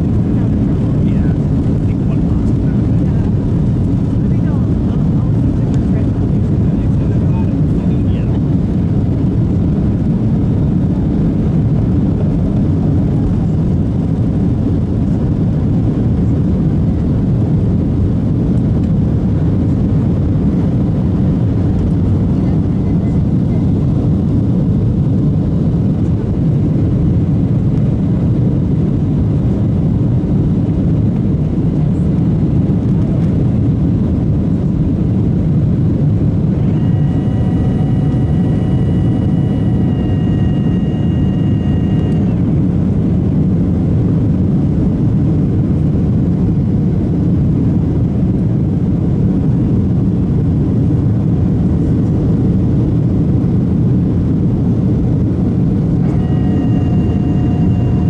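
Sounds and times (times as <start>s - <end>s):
airplane cabin rumble: 0.0s - 58.0s
high multi-tone whine: 34.8s - 45.0s, 52.0s - 58.0s.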